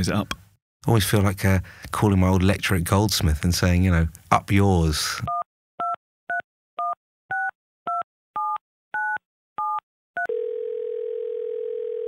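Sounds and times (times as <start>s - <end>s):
phone line tone: 10.2s - 12.0s.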